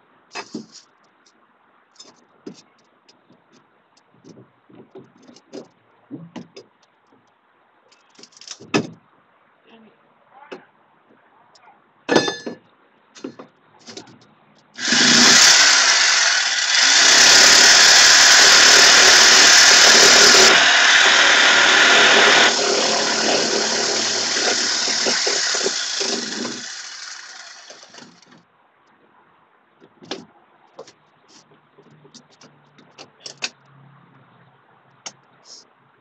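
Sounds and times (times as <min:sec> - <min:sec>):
reciprocating saw cutting: 0:14.8 - 0:28.2.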